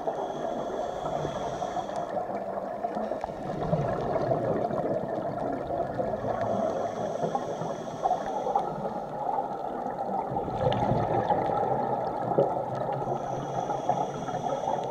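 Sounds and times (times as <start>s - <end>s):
faint high whine: 0.0s - 2.3s, 6.2s - 9.0s, 12.8s - 14.9s
muffled rush of water: 0.0s - 14.9s
regulator bubbles gurgling: 0.0s - 14.9s.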